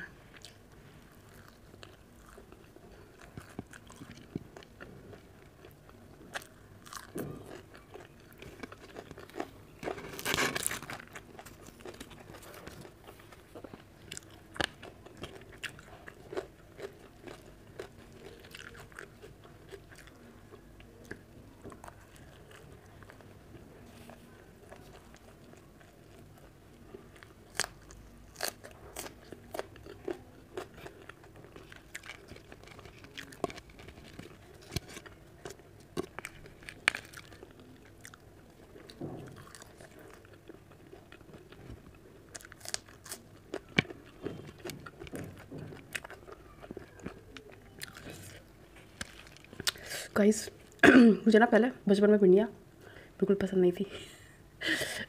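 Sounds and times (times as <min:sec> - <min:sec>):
person chewing food: 0:00.0 - 0:50.8
crunchy bites: 0:42.3 - 0:49.9.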